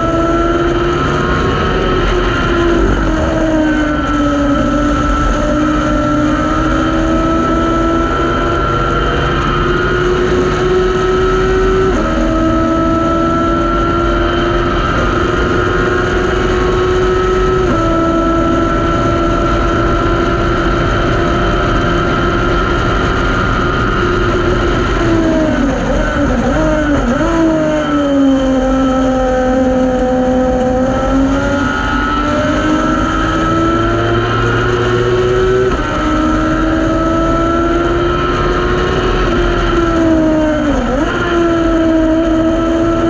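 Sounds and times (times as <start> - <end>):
race car engine at full throttle: 0.0 - 43.0.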